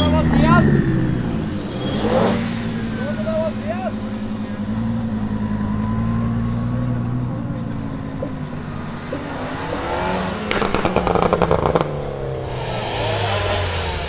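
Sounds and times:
car engine revving: 0.0 - 14.0
exhaust pops and bangs: 10.4 - 12.0.

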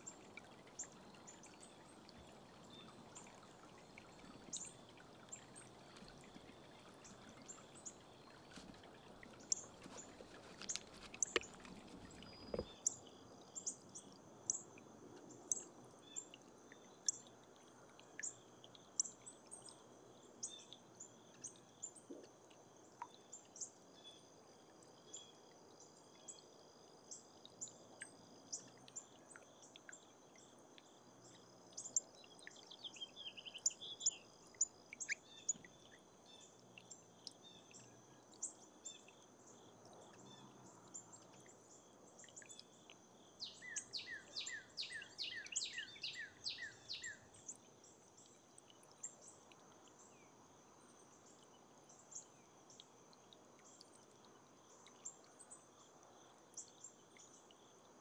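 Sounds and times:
small ticks: 0.0 - 15.7
bird chirping: 9.3 - 13.8, 31.8 - 35.6, 43.4 - 47.5.

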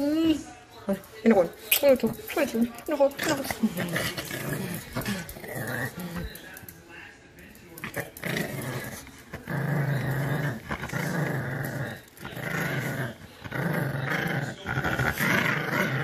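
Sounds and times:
puppy growling playfully: 1.4 - 6.4, 7.8 - 16.0.

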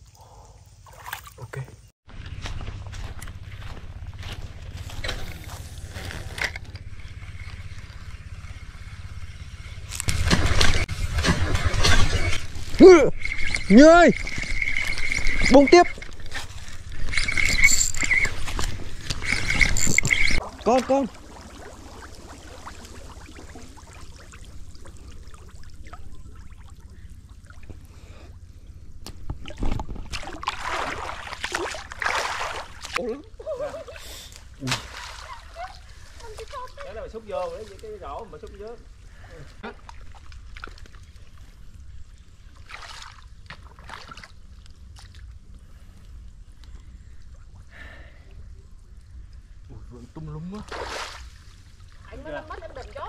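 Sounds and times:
light water splashes: 0.0 - 1.6, 10.0 - 28.4, 29.0 - 53.0
water lapping and trickling: 0.0 - 1.6, 2.2 - 53.0
steady low rumble: 2.1 - 29.3
basket pushed through water: 10.1 - 26.6.

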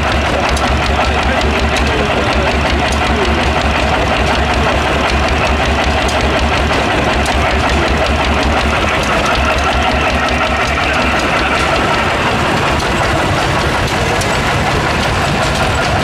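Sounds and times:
light mechanical clicking: 0.0 - 12.0
stationary engines running: 0.0 - 16.0.

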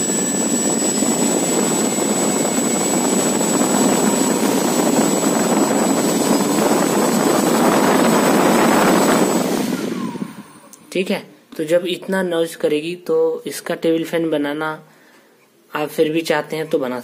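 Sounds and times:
propeller air whoosh: 0.0 - 10.7
motor high whine: 0.0 - 10.9.

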